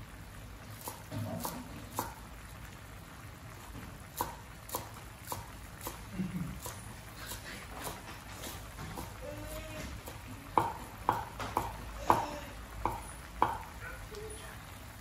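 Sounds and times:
spatula knocking on metal wok: 0:07.8 - 0:13.8.

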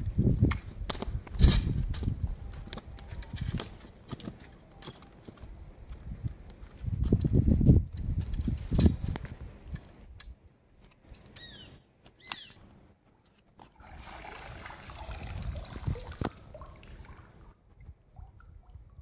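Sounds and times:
water splashing and trickling: 0:13.6 - 0:19.0.

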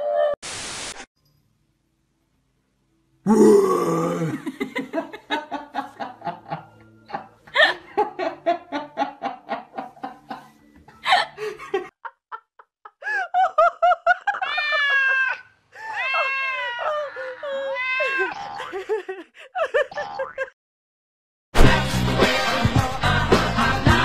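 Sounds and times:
person laughing: 0:03.3 - 0:20.5.

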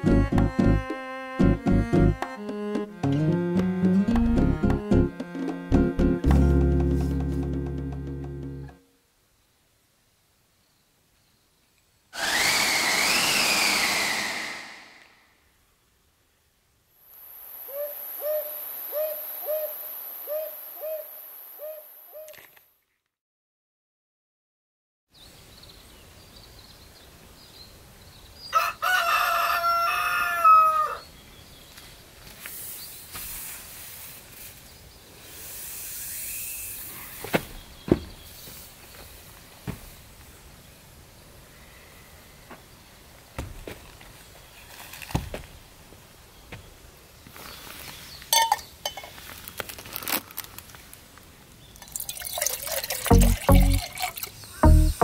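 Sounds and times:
rooster crowing: 0:28.5 - 0:31.0
ringing clink: 0:48.4 - 0:49.0.

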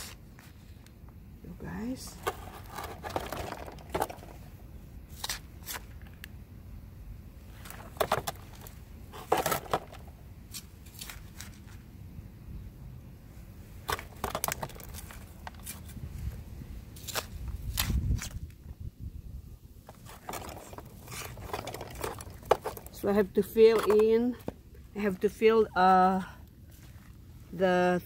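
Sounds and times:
soil rattling into plastic planter: 0:02.2 - 0:04.5, 0:07.6 - 0:10.2, 0:13.8 - 0:15.9, 0:19.9 - 0:24.6
scoop scraping soil: 0:19.9 - 0:24.4.

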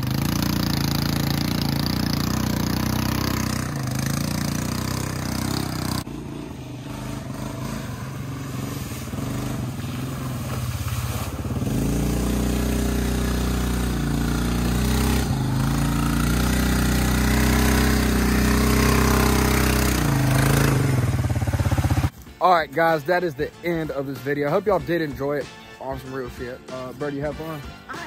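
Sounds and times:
atv engine revving: 0:00.0 - 0:22.1
water splashing: 0:07.7 - 0:14.1.

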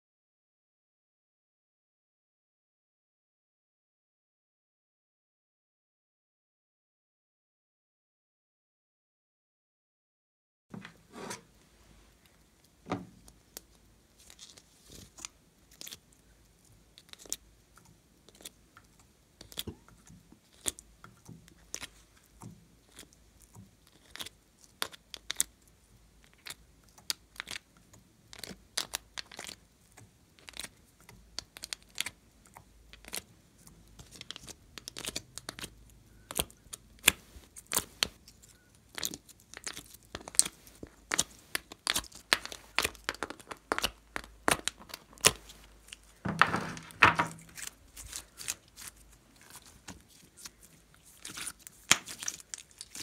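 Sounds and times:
sticky slime clicks and squishes: 0:36.3 - 0:46.0, 0:47.4 - 0:53.0.

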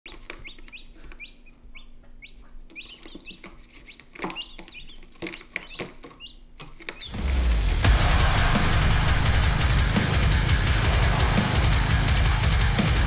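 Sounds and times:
chicks peeping: 0:00.1 - 0:07.2.

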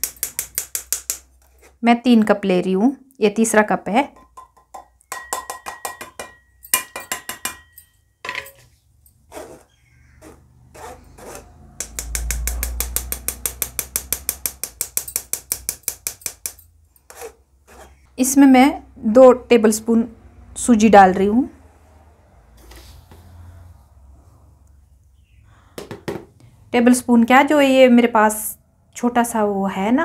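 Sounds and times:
fast even tapping on sieve: 0:11.8 - 0:16.6.

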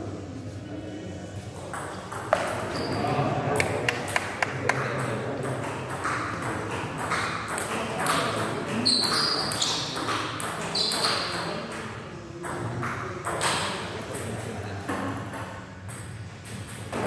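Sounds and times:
ping pong ball clicking: 0:03.6 - 0:14.2
short high squeaks: 0:08.8 - 0:09.9.

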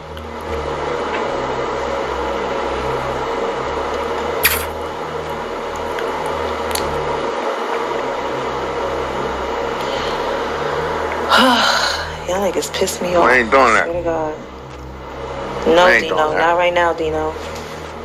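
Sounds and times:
background hum and hiss: 0:00.0 - 0:18.0
sharp click: 0:04.4 - 0:04.8.

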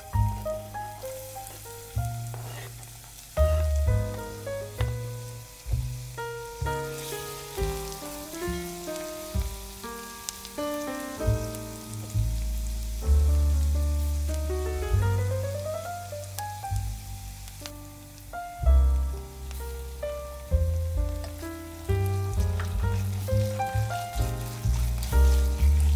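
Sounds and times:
onion sizzling in a pan: 0:00.0 - 0:25.9
plucked instrumental music: 0:03.4 - 0:13.5.

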